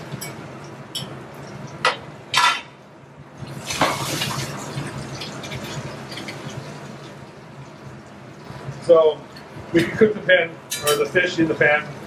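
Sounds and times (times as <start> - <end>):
metal tray and tongs clanking: 0.1 - 1.2, 1.8 - 2.8, 10.7 - 11.3
butter sizzling in frying pans: 3.4 - 9.6.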